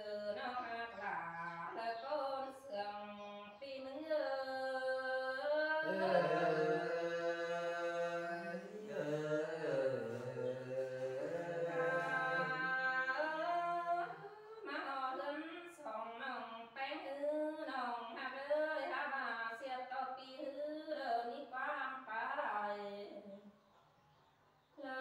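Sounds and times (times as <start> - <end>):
person singing unaccompanied: 0.0 - 18.8.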